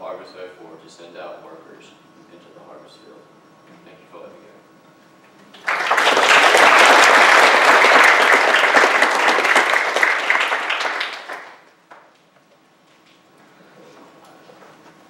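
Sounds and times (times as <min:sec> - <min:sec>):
crowd applauding: 0:05.5 - 0:12.1.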